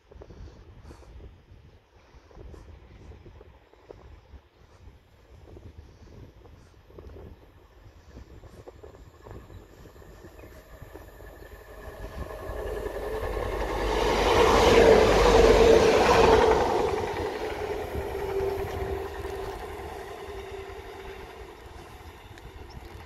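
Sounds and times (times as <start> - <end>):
diesel train engine rumble: 7.2 - 23.0
train wheels on rails: 8.1 - 23.0.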